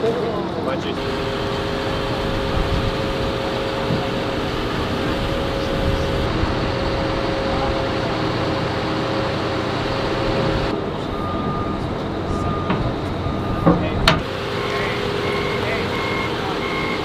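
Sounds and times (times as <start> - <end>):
wheel loader diesel engine: 0.0 - 17.0
reversing alarm beeps: 11.0 - 17.0.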